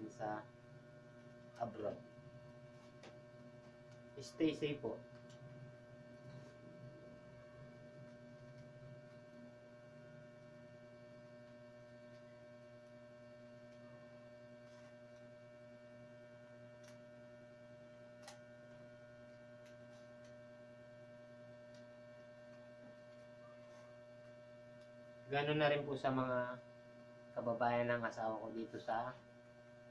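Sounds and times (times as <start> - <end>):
electrical hum: 0.0 - 29.9.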